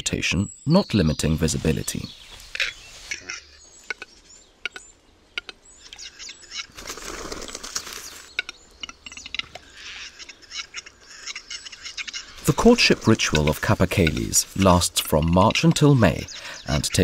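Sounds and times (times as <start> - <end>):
bird scraping hiss: 2.2 - 3.3.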